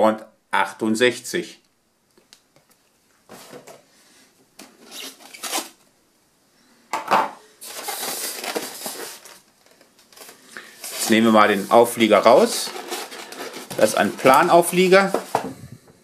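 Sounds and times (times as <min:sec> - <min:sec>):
polystyrene tray rubbing and rustling: 0:04.8 - 0:05.8, 0:07.6 - 0:15.4.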